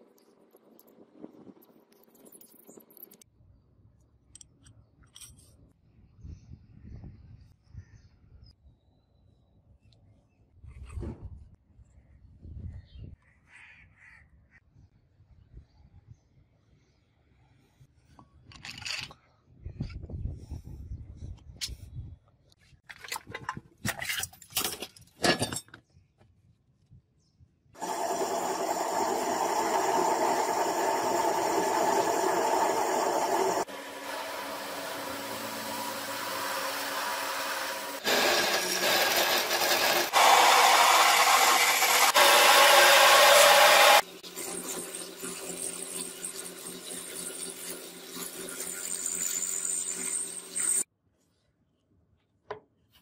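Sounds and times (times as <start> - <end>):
end mill cutting steel: 27.8 - 50.8
lathe drilling steel: 27.8 - 50.8.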